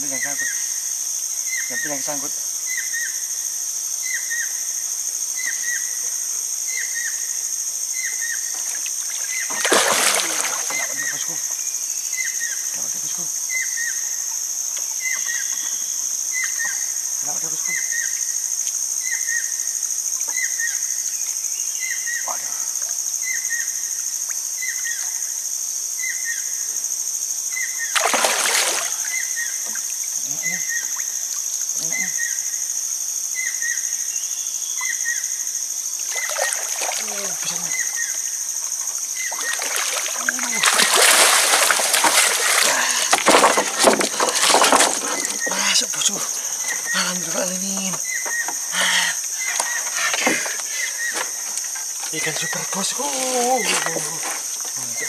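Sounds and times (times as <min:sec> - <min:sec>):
insects droning: 0:00.0 - 0:55.0
fish splashing at water surface: 0:09.2 - 0:11.2, 0:27.9 - 0:29.2, 0:36.1 - 0:37.9, 0:39.2 - 0:46.0.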